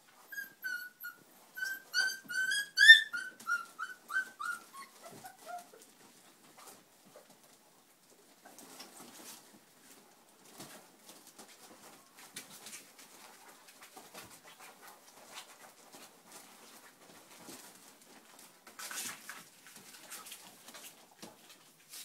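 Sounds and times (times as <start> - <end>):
puppies squeaking and grunting: 0.0 - 6.0.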